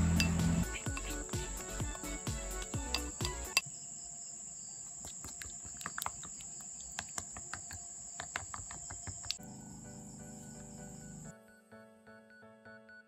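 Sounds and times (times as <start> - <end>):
soft background music: 0.0 - 4.4, 9.4 - 13.0.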